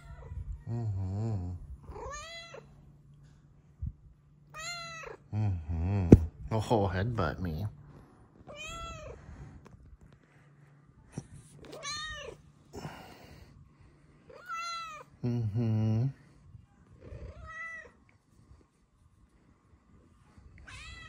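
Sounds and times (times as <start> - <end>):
low humming voice: 0.0 - 21.0
cat meowing: 1.9 - 2.6, 4.5 - 5.2, 8.5 - 9.2, 11.7 - 12.4, 14.4 - 15.1, 20.6 - 21.0.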